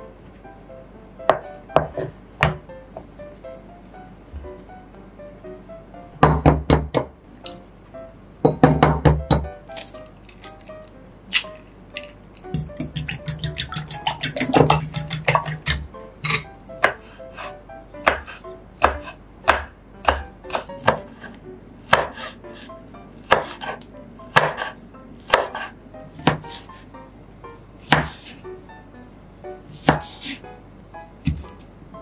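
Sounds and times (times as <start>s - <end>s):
knife chopping on wooden board: 1.3s - 2.6s, 6.2s - 7.1s, 12.5s - 15.9s, 16.8s - 21.3s, 21.9s - 22.3s, 23.2s - 26.6s, 27.8s - 28.4s, 29.7s - 30.4s, 31.2s - 31.5s.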